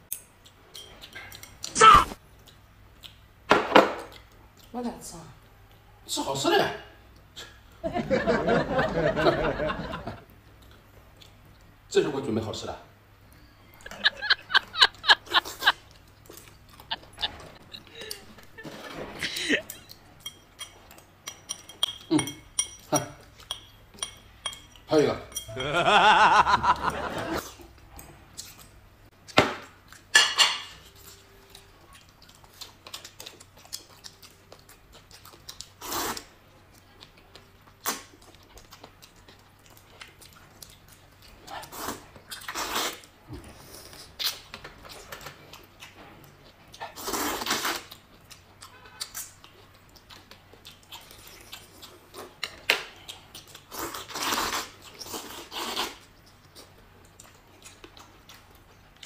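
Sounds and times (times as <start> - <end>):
noodles being slurped: 46.9 - 48.0, 53.6 - 56.0.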